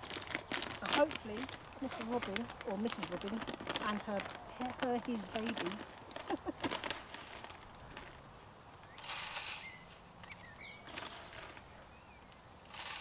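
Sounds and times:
faint bird chirps: 8.4 - 12.4.

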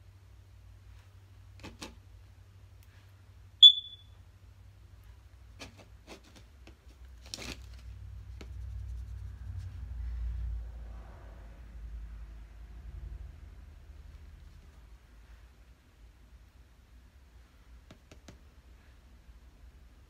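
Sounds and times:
short high ping: 3.6 - 4.1
faint clicks and taps: 8.3 - 8.7, 17.8 - 18.6.

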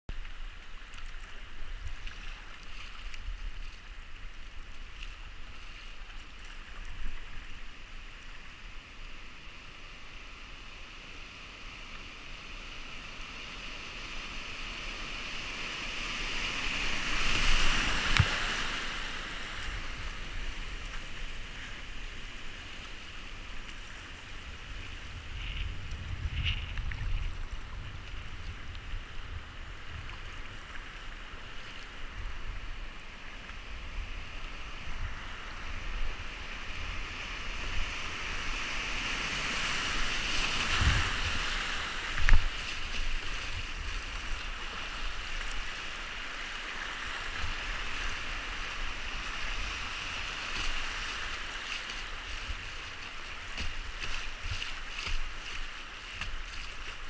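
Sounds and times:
river water rushing: 0.1 - 25.4, 27.2 - 57.0
wind rumble on microphone: 10.5 - 57.0.

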